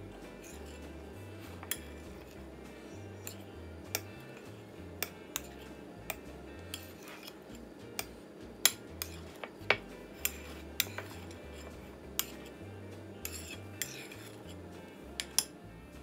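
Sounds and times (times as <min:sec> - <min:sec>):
metal spoon clinking in bowl: 0:08.7 - 0:12.5, 0:13.2 - 0:14.5, 0:15.2 - 0:15.5.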